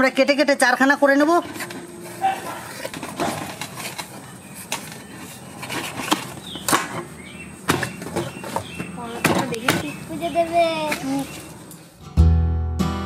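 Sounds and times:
knife scraping on metal plate: 1.4 - 6.4.

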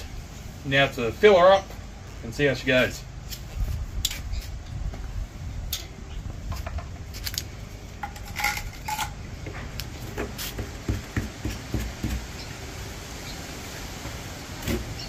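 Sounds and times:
metallic clinks and knocks: 8.0 - 9.2.

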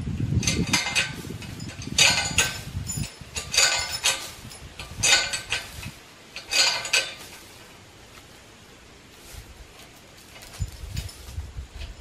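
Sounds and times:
metal chain rattling and clinking: 0.4 - 7.6, 10.3 - 11.4.

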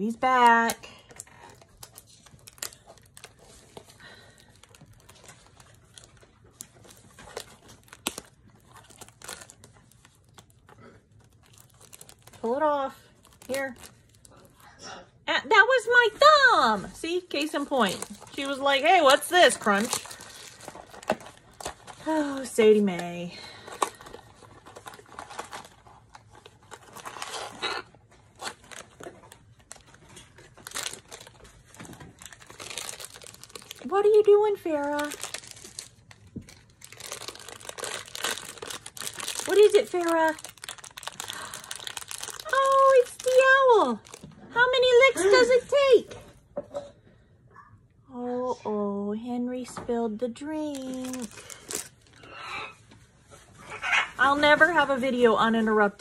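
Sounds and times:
plastic wrap crinkling and tearing: 0.0 - 14.7, 17.0 - 45.4, 50.4 - 52.5.

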